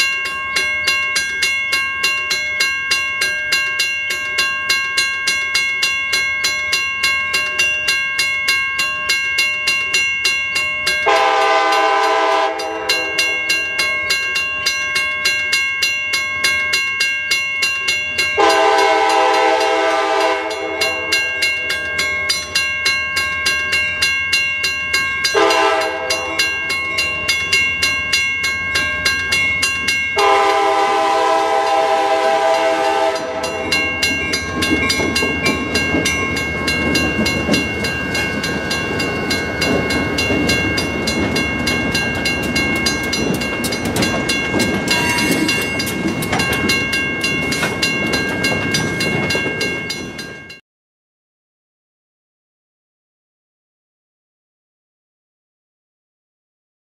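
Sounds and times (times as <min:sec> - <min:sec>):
bell ringing: 0:00.0 - 0:50.6
locomotive horn blasts: 0:11.0 - 0:13.3, 0:18.4 - 0:21.1, 0:25.4 - 0:26.4, 0:30.2 - 0:33.7
train rumbling: 0:24.9 - 0:50.6.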